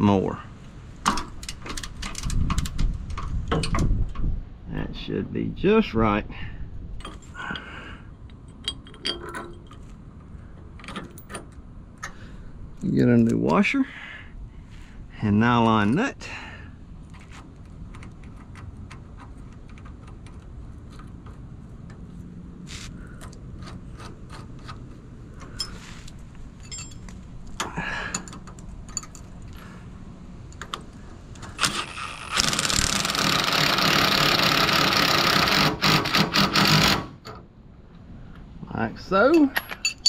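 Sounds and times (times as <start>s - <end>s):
power tool running: 31.6s - 37.2s.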